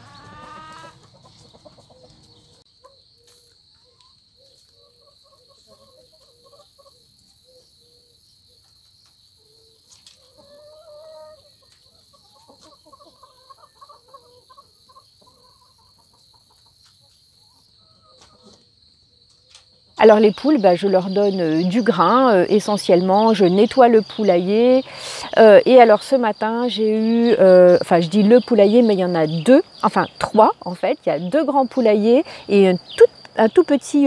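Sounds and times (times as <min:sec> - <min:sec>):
hens clucking: 0:00.0 - 0:02.6, 0:10.1 - 0:18.7.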